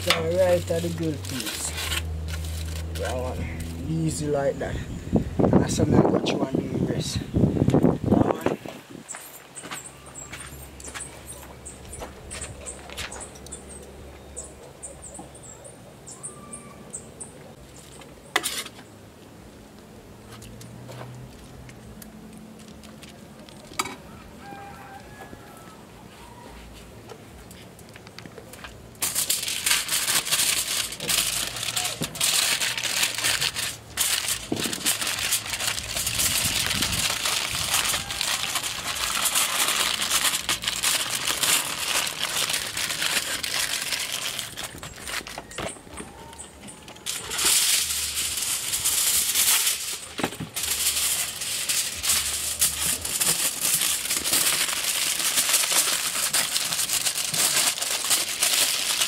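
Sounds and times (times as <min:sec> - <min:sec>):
kitchen foil crinkling: 0:00.0 - 0:04.2, 0:22.3 - 0:25.1, 0:27.4 - 0:59.0.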